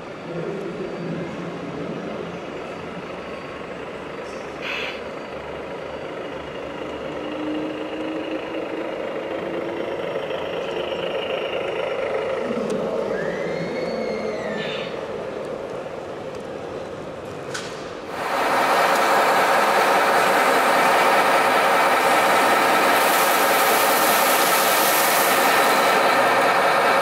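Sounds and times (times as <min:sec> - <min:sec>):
simulated diesel truck engine: 0:00.0 - 0:27.0
short air hiss: 0:04.6 - 0:05.0.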